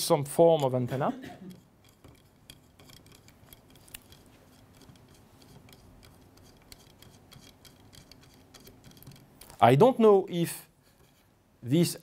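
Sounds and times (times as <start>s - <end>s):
small metal parts clicking: 1.5s - 9.6s.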